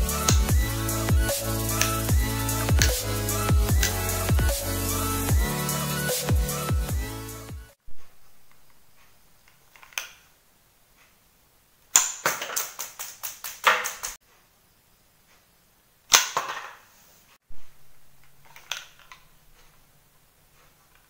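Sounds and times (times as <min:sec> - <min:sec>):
marble gun sharp crack: 0:11.9 - 0:14.2, 0:16.1 - 0:16.8.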